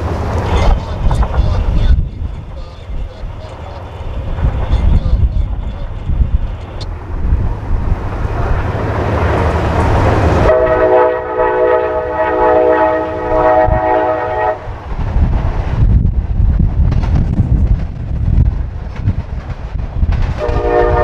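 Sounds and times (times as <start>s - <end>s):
train rumble: 0.0s - 21.0s
wind buffeting microphone: 0.0s - 21.0s
locomotive air horn blast: 10.0s - 14.8s, 20.4s - 21.0s.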